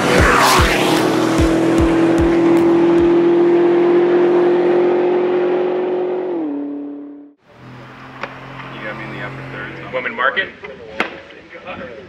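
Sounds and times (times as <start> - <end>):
car engine revving high: 0.0 - 10.2.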